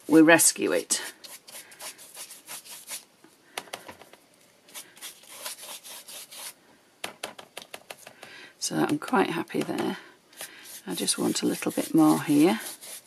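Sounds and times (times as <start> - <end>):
stiff brush scratching on card: 1.2 - 3.0, 4.7 - 6.6, 10.4 - 13.0.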